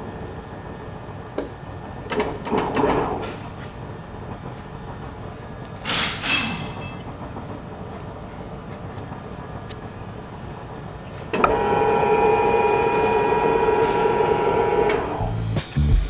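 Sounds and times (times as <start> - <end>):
workshop hum: 0.0 - 16.0.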